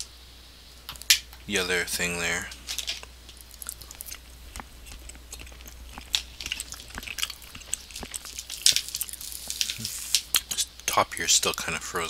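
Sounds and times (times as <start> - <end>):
chewing: 2.5 - 10.7.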